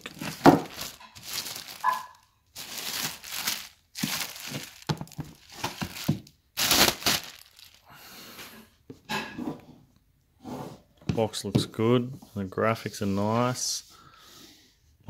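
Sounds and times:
plastic wrapping crinkling: 0:00.0 - 0:07.9.

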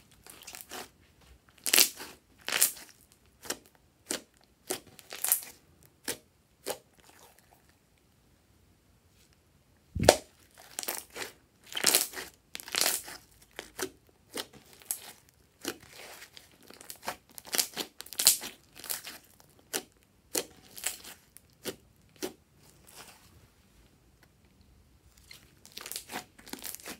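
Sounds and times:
slime squishing and crackling: 0:00.2 - 0:00.9, 0:01.5 - 0:07.4, 0:10.0 - 0:23.2, 0:25.2 - 0:26.9.

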